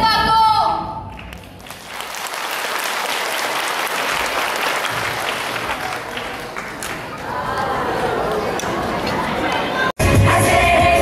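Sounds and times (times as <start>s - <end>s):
audience applauding: 1.2s - 9.9s.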